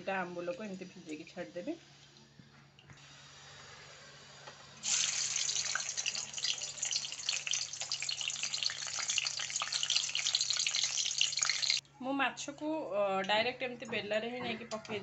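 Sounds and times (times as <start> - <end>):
fish frying in hot oil: 4.8 - 11.8.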